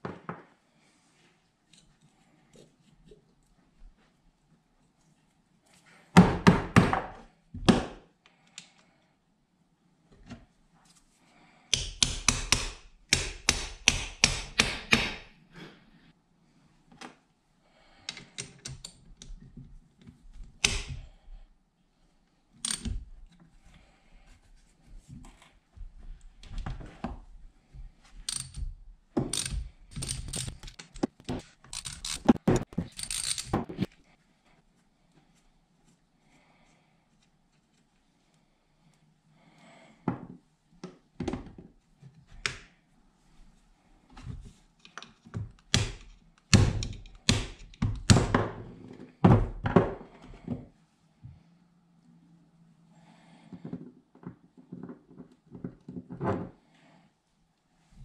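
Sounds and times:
hand ratchet clicking: 22.6s - 22.9s, 28.3s - 28.7s, 29.3s - 31.1s, 31.7s - 33.6s
metal clinks and knocks: 28.2s - 31.1s, 31.7s - 33.8s.

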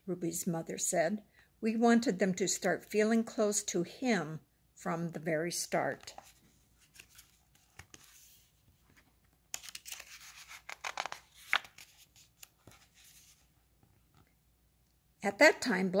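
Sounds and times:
book page turning: 6.0s - 13.5s.

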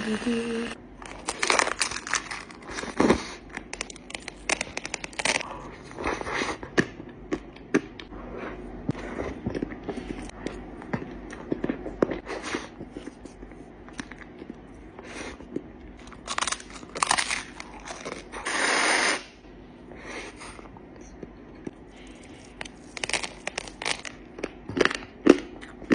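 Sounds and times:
crunching bites of wafer cone: 16.0s - 19.2s, 22.4s - 25.9s.

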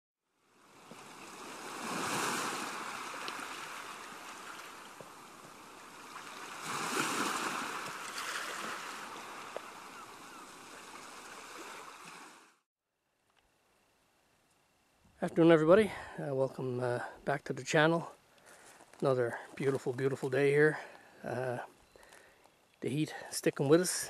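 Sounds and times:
ocean waves breaking: 0.5s - 12.6s.

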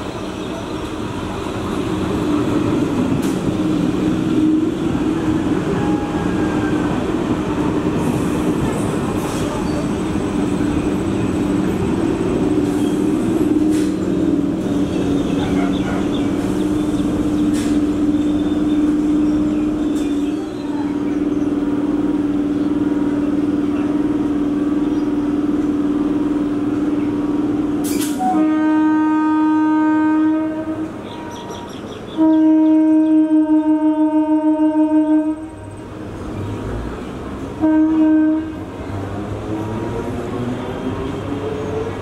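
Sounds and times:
train passing: 0.0s - 42.0s
train horn blasts: 28.1s - 31.4s, 32.2s - 35.6s, 37.6s - 38.7s.

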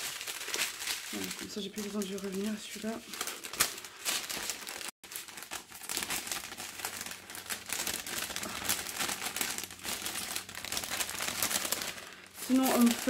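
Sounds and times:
plastic packets crinkling: 0.0s - 13.0s.

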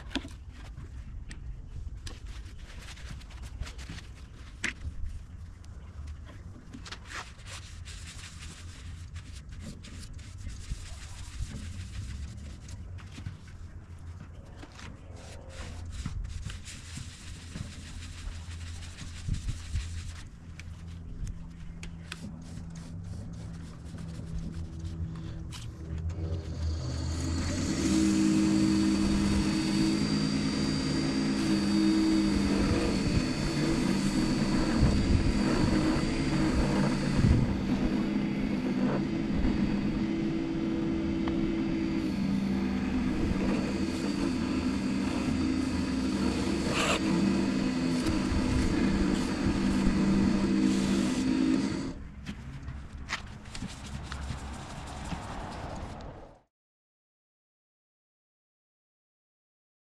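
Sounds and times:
towel rubbing spinning wood: 1.7s - 5.4s, 6.0s - 55.8s
wood lathe motor hum and whine: 26.0s - 52.0s.

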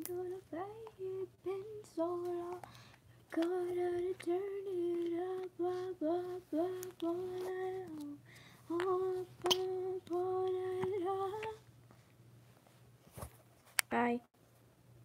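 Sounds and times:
girl singing alone: 0.0s - 11.6s.

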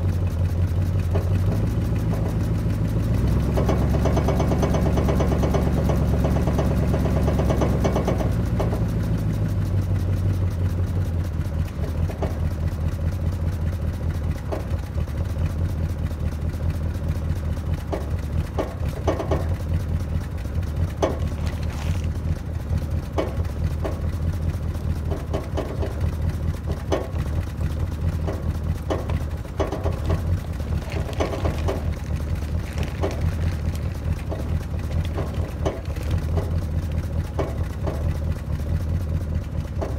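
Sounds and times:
car engine idling: 0.0s - 39.9s
tarp rustling: 21.2s - 22.2s, 30.2s - 34.0s.

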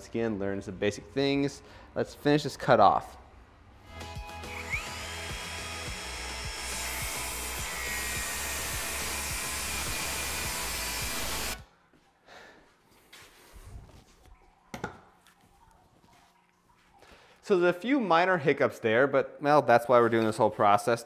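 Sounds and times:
circular saw cutting wood: 4.0s - 11.6s.

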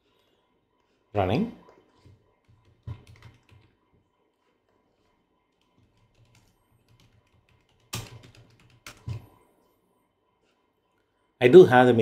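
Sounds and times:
computer keyboard keystrokes: 2.4s - 3.7s, 5.5s - 9.2s.

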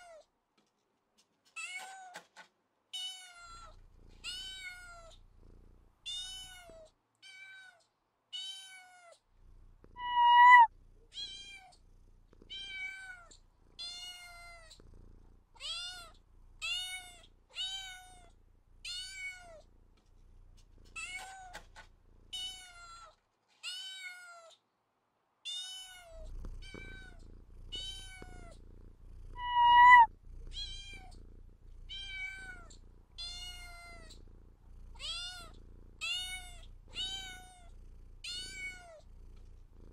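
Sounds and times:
cat meowing: 10.0s - 11.7s, 29.4s - 31.1s.

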